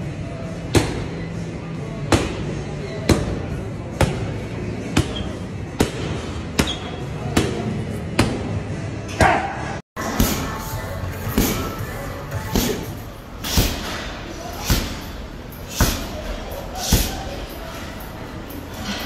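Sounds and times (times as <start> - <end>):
music playing: 10.0 - 19.0.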